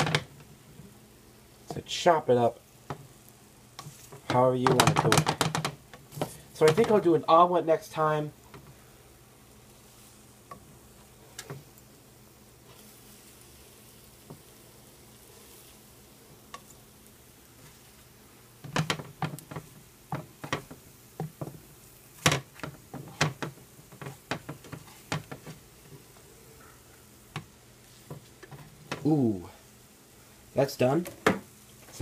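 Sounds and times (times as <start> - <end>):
eggs sizzling: 0.0 - 32.0
spatula scraping frying pan: 3.8 - 7.0, 17.5 - 26.7.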